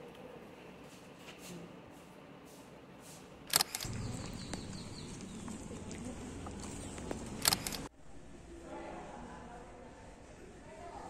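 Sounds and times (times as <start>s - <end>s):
outdoor background noise: 0.0s - 11.0s
sharp clicks: 3.5s - 7.9s
footsteps on gravelly dirt path: 3.8s - 7.9s.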